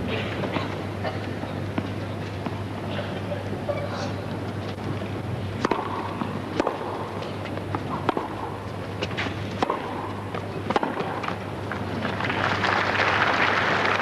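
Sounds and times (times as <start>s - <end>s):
faint crowd murmur: 0.0s - 7.9s, 10.0s - 14.0s
steady low hum: 0.0s - 14.0s
tennis ball bouncing: 4.8s - 11.5s
racket striking tennis ball: 5.6s - 11.4s.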